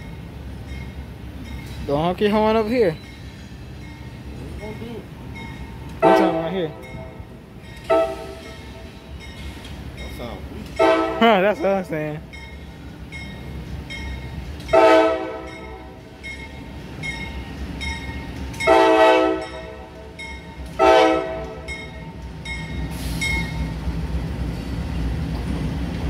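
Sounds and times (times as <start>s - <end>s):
freight train rumbling past: 0.0s - 26.0s
locomotive air horn blasts: 6.0s - 6.6s, 7.9s - 8.6s, 10.8s - 11.2s, 14.7s - 15.6s, 18.7s - 19.9s, 20.8s - 21.7s.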